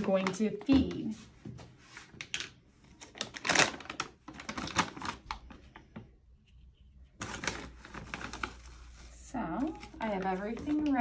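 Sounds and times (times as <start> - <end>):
foil bag crinkling: 3.0 - 5.7, 7.2 - 11.0.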